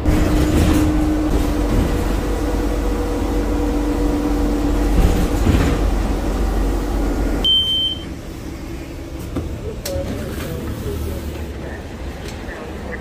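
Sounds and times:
bus engine and road rumble: 0:00.0 - 0:13.0
short high beep: 0:07.4 - 0:08.1.

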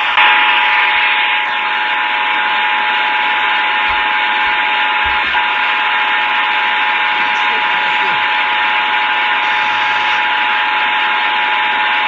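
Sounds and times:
radio static hiss: 0:03.1 - 0:10.6.

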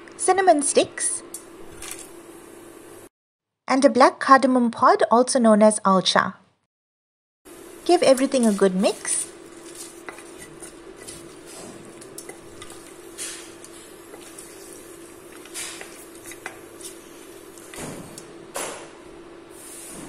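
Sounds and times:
steady low hum: 0:07.5 - 0:19.5
wooden spoon stirring in pot: 0:07.8 - 0:17.8
spoon scraping and knocking pot: 0:07.9 - 0:17.8.

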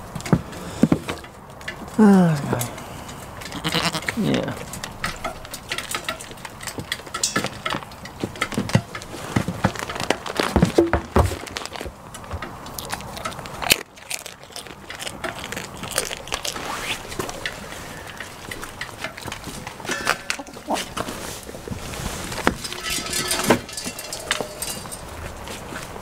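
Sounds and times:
goats crunching feed: 0:00.0 - 0:26.0.

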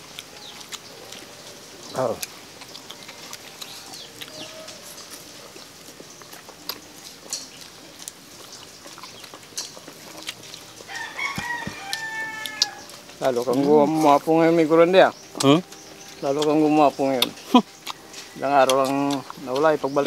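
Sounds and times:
people eating with hands: 0:00.0 - 0:20.0
rooster crowing: 0:03.0 - 0:05.1, 0:10.8 - 0:13.0.

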